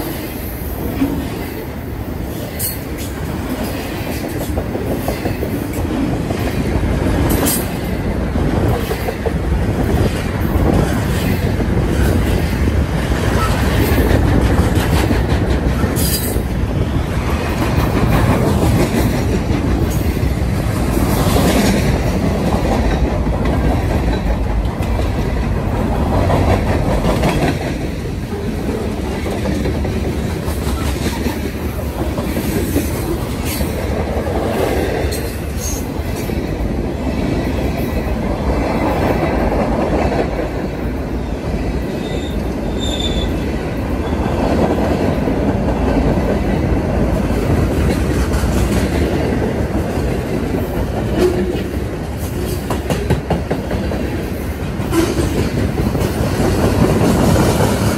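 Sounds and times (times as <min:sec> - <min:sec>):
freight cars rumbling on rails: 0:00.0 - 0:57.9
wheels clacking over rail joints: 0:02.6 - 0:36.4
high wheel squeal: 0:42.0 - 0:43.4.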